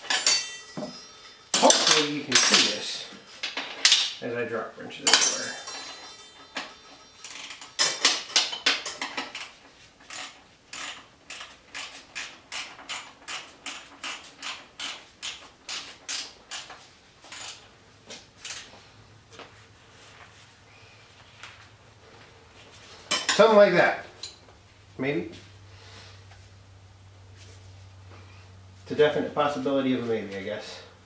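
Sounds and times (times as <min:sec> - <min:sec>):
ratchet wrench clicking: 0:07.2 - 0:09.5, 0:10.1 - 0:16.7, 0:17.3 - 0:17.6, 0:18.4 - 0:18.7.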